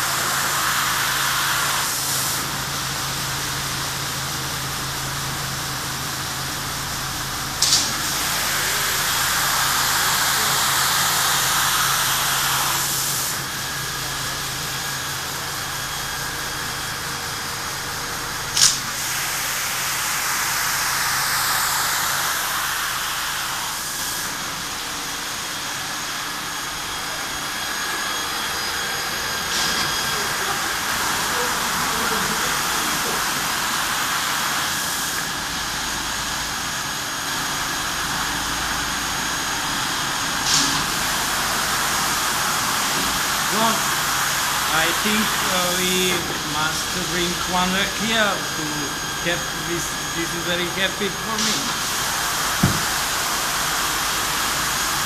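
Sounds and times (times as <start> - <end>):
water jets spraying onto rug: 0.0 - 2.5, 7.6 - 13.5, 18.5 - 24.6, 40.3 - 48.4, 49.8 - 55.0
machine noise: 0.0 - 55.0
sharp click: 18.6 - 18.8.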